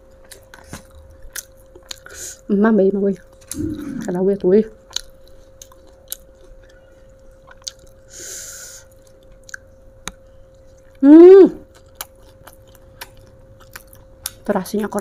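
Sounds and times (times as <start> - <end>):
wet mouth clicks and chewing: 0.1 - 2.1, 3.1 - 4.2, 4.8 - 6.8, 7.4 - 8.0, 8.9 - 10.2, 11.7 - 15.0
person humming mmm: 3.5 - 4.2, 11.0 - 11.7
breathy hiss: 8.1 - 8.9.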